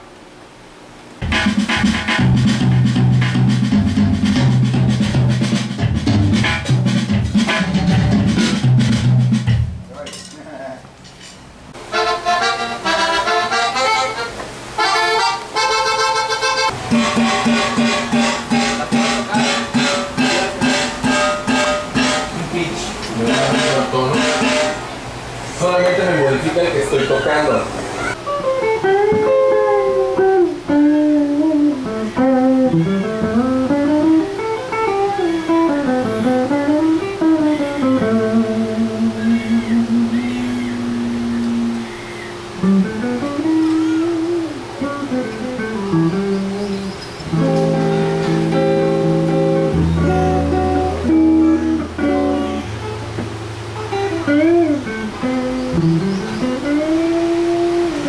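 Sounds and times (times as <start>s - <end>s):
bluesy electric guitar lead: 11.8s - 25.3s, 27.9s - 58.0s.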